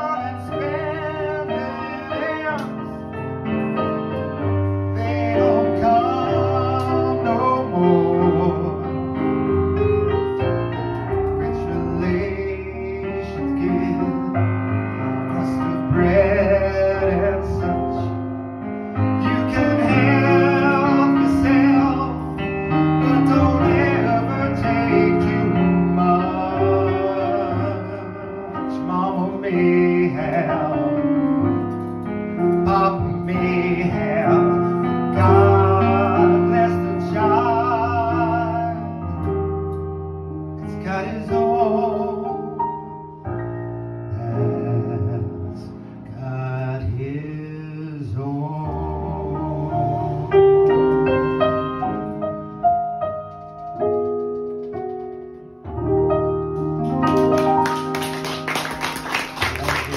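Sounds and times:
man singing with vibrato: 0.0 - 3.1, 4.6 - 9.4, 11.2 - 18.2, 19.1 - 31.2, 32.4 - 39.2, 40.6 - 42.6, 44.1 - 50.6
piano accompaniment: 0.0 - 59.9.

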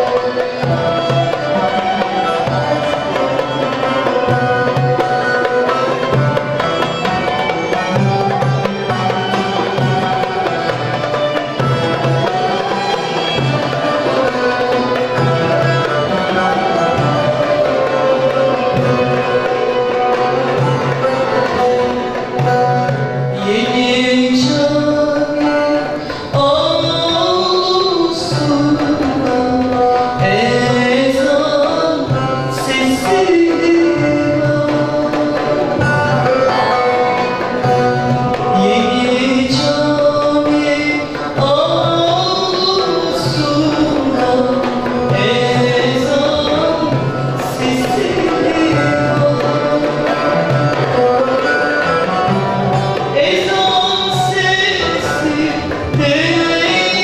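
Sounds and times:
frame drum beat: 0.0 - 57.0
plucked ouds: 0.0 - 57.0
woman singing: 23.3 - 37.3, 38.4 - 57.0.

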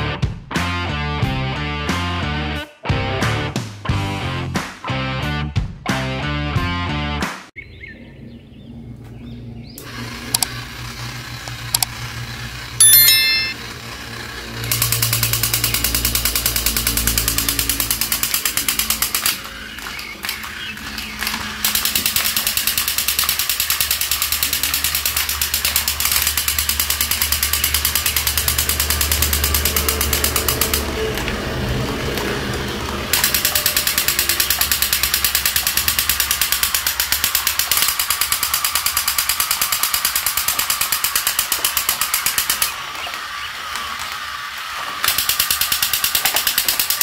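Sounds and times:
toy mechanical rattle: 9.9 - 19.6, 20.8 - 30.9, 33.1 - 43.5, 45.0 - 47.0.

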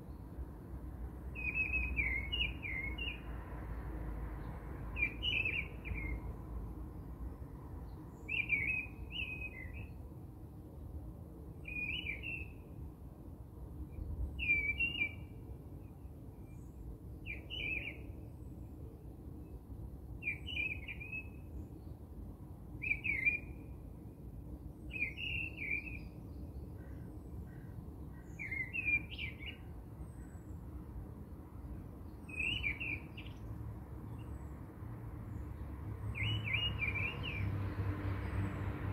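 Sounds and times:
bird chirping: 1.3 - 3.2, 4.4 - 6.2, 7.8 - 10.0, 11.6 - 12.6, 14.4 - 15.3, 16.4 - 18.3, 20.2 - 22.0, 22.8 - 23.7, 24.8 - 30.6, 32.0 - 33.5, 36.0 - 38.6.

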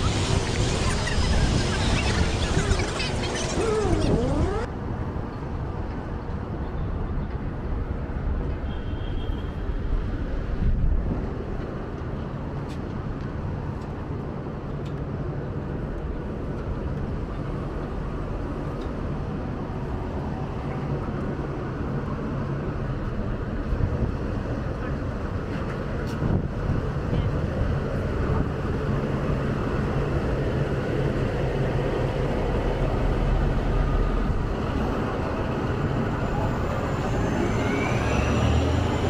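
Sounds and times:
passing vehicles rumbling: 15.6 - 39.0.

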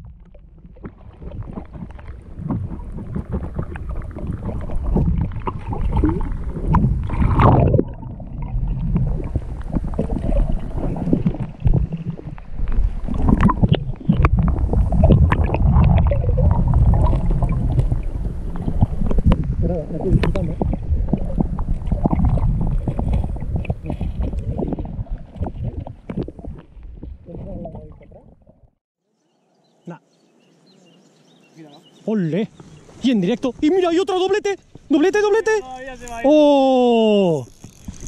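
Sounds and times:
small underwater knocks and clicks: 0.0 - 16.2, 16.9 - 28.2
underwater rumble of moving water: 0.0 - 28.8.

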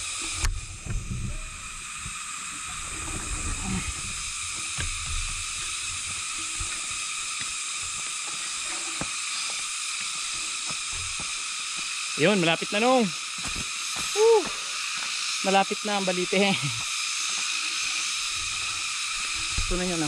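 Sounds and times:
steady high-pitched hiss: 0.0 - 20.0.

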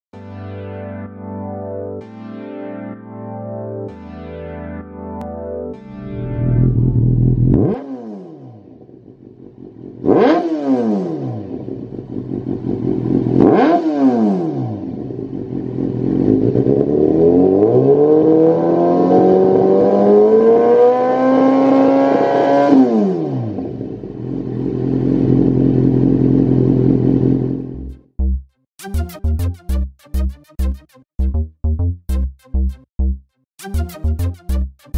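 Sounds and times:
motorcycle engine revving: 6.2 - 27.9.

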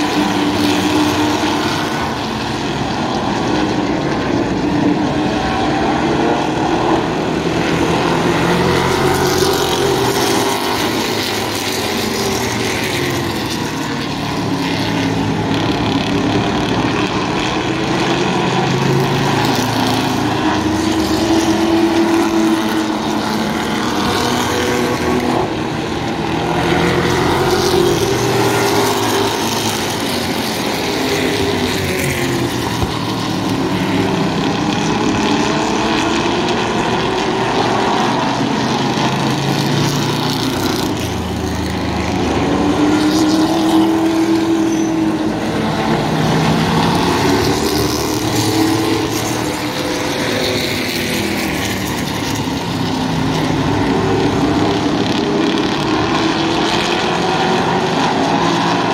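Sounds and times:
race car engines passing: 0.0 - 58.9.

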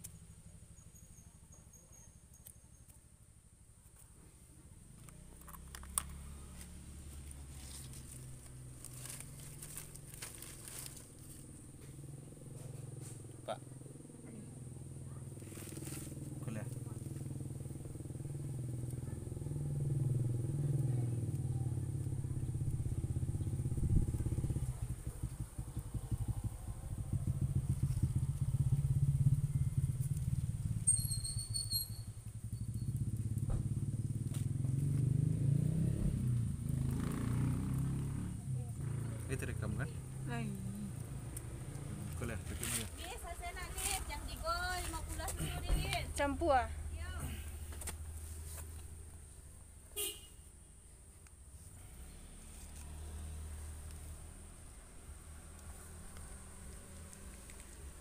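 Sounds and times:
plant cuttings rustling: 5.6 - 11.9, 15.3 - 17.3, 41.4 - 46.2.

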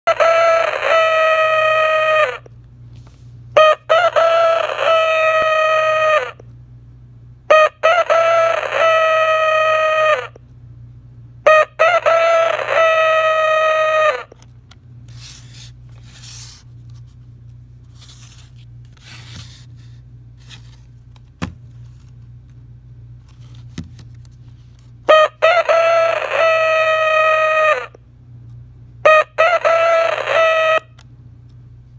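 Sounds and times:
alarm clock rooster crow: 0.1 - 2.5, 3.6 - 6.4, 7.5 - 10.4, 11.5 - 14.3, 25.1 - 28.0, 29.0 - 31.0.

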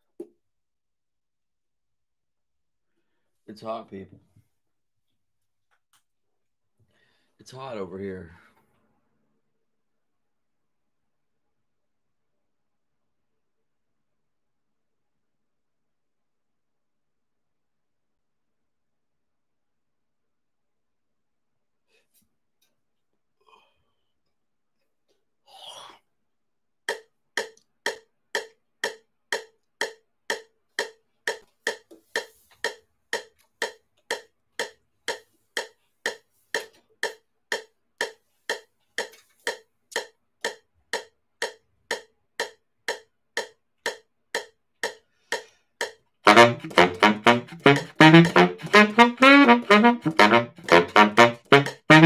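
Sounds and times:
metronome clicking: 26.9 - 52.0
baritone saxophone playing: 46.3 - 52.0.

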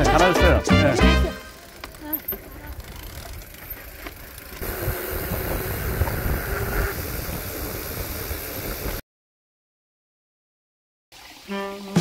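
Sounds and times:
bike tyre noise on dirt: 0.8 - 9.0
wind buffeting microphone: 2.5 - 9.0.

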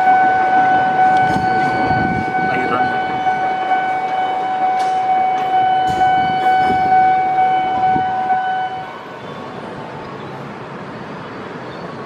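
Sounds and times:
train horn: 0.0 - 8.9
passing train: 0.0 - 12.0.

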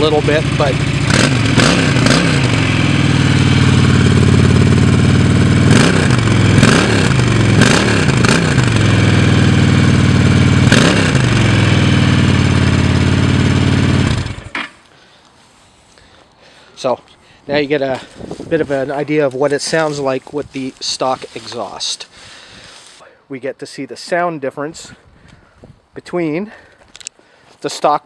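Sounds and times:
motorcycle engine idling: 0.0 - 14.6
motorcycle throttle blips: 0.0 - 14.8.

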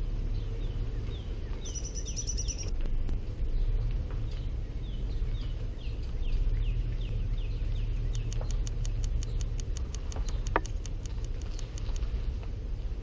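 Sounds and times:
car rumbling: 0.0 - 13.0
high falling chirp: 0.8 - 2.7
faint high ticks: 8.1 - 12.3.

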